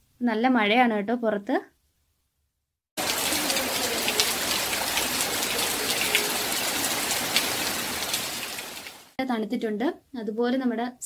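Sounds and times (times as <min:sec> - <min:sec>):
heavy rain pouring: 0:03.0 - 0:09.2
raindrops splashing close by: 0:03.0 - 0:09.2.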